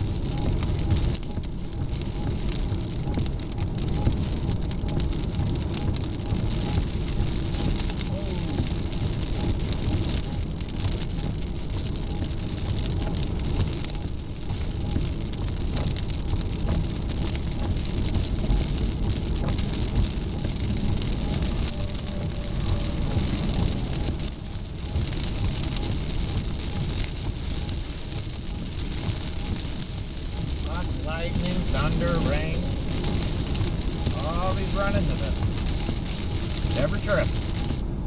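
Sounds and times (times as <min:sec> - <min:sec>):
raindrops ticking on windshield: 0:00.0 - 0:38.0
road and tyre noise: 0:00.0 - 0:38.0.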